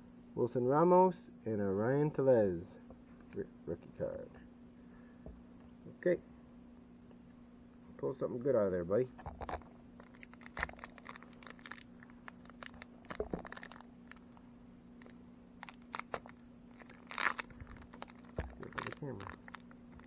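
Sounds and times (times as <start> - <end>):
faint steady hum: 0.0 - 20.0
plastic wrapper crinkling: 9.2 - 20.0.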